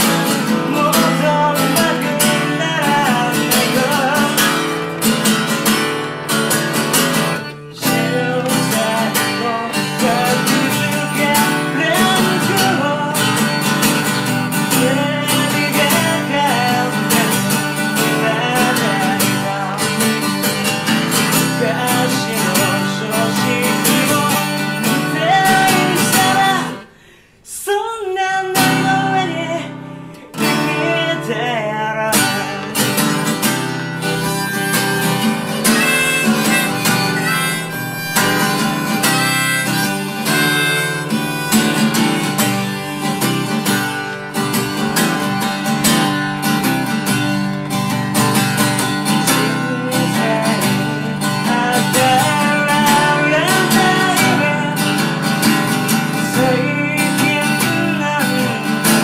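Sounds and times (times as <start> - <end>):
acoustic guitar strumming: 0.0 - 59.0
harmonica bending notes: 33.2 - 46.0.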